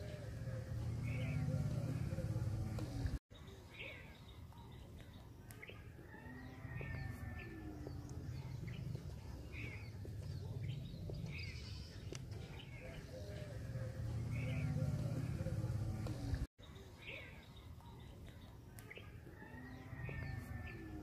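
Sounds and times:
steady low rumble: 0:00.0 - 0:03.2
birds chirping: 0:00.0 - 0:21.0.

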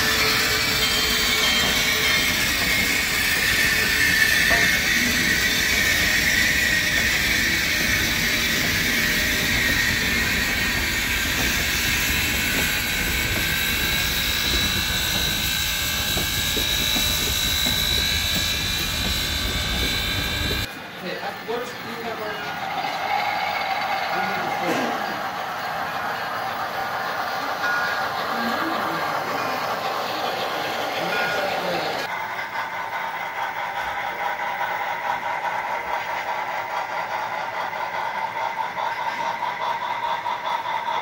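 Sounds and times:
high whine rising in pitch: 0:00.0 - 0:20.7
steam locomotive rumble and hiss: 0:00.0 - 0:20.7, 0:24.2 - 0:41.0.

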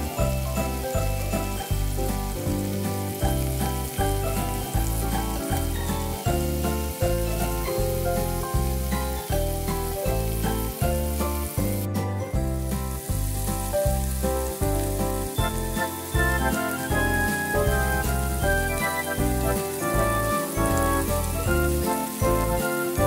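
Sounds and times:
ribs sizzling in oil: 0:00.0 - 0:23.0.

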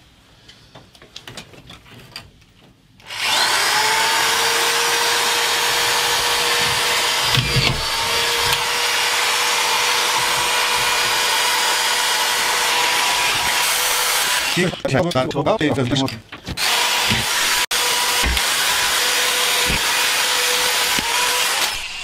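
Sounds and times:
electric screwdriver whine: 0:03.1 - 0:14.8.

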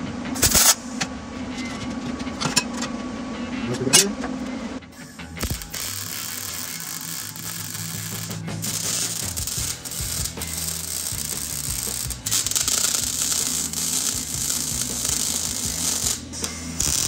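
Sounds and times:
background music with bass: 0:00.0 - 0:17.0
arc welding hissing crackle: 0:00.4 - 0:01.0, 0:05.0 - 0:17.0.

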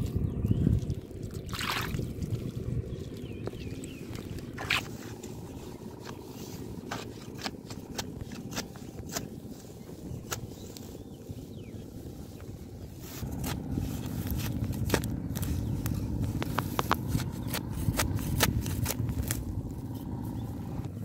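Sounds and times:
low rumble: 0:00.0 - 0:06.9, 0:07.8 - 0:21.0
hands scraping through wet mud: 0:01.4 - 0:11.0.

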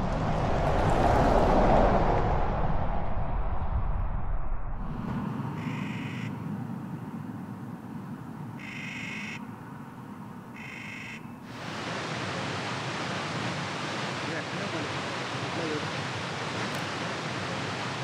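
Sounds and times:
low rumble: 0:00.0 - 0:05.6
short high-pitched animal calls: 0:08.6 - 0:09.4, 0:10.6 - 0:11.3.

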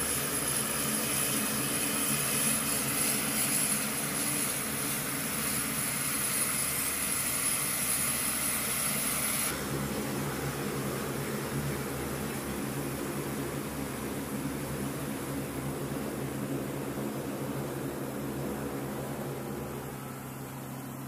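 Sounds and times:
high-pitched engine whine: 0:00.0 - 0:21.0
turboprop engines droning: 0:09.5 - 0:21.0.

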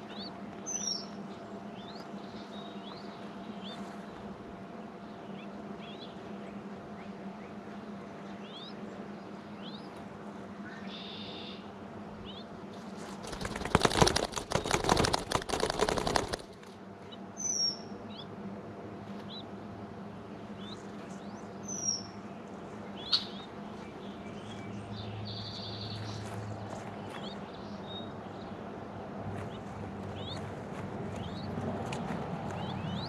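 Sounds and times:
faint bird chirps: 0:10.6 - 0:12.5, 0:22.9 - 0:26.2
dove wings flapping: 0:12.9 - 0:16.8.

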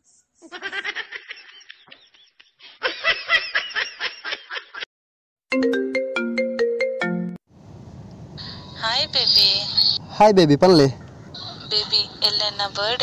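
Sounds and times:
mobile phone ringtone melody: 0:05.5 - 0:07.4.

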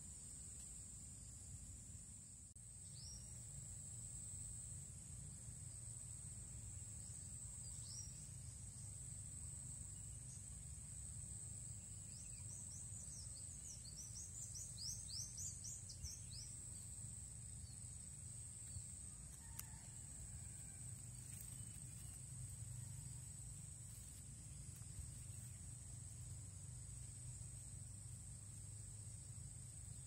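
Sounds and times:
insect drone: 0:00.0 - 0:30.0.

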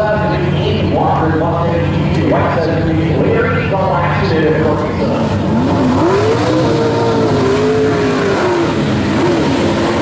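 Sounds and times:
car engine revving in a burnout: 0:04.6 - 0:10.0.

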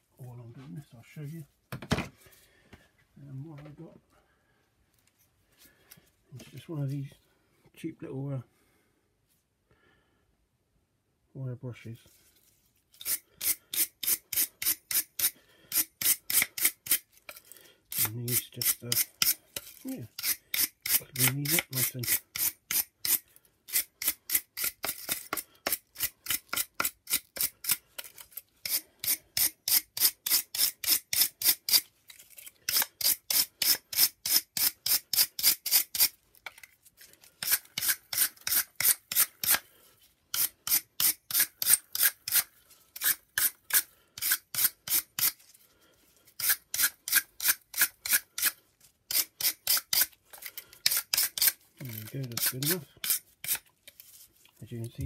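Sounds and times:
wire brush scrubbing plastic: 0:12.4 - 0:55.0.

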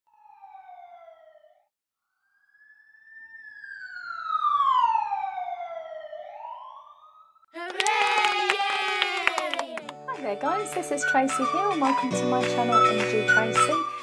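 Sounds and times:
siren wailing: 0:02.2 - 0:09.8.

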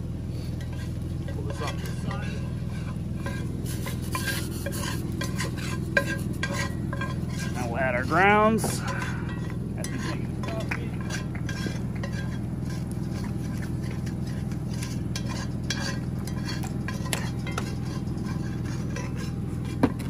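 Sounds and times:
steady low hum: 0:00.0 - 0:20.0
whisk scraping in skillet: 0:00.2 - 0:20.0.

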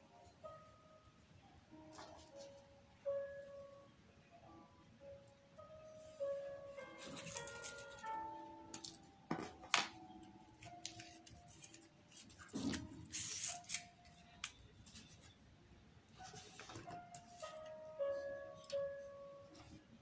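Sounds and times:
paper rustling and crinkling: 0:07.0 - 0:08.2, 0:10.5 - 0:15.4, 0:16.2 - 0:17.8
scissors cutting paper: 0:07.0 - 0:09.0, 0:10.4 - 0:15.4.

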